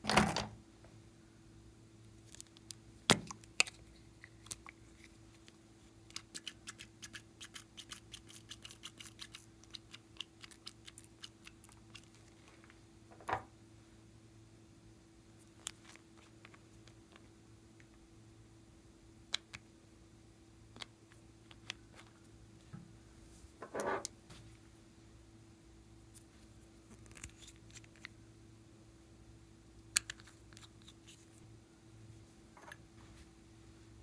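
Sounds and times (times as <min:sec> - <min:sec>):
faint steady hum: 0:00.0 - 0:34.0
plastic caps clicking: 0:30.0 - 0:30.7.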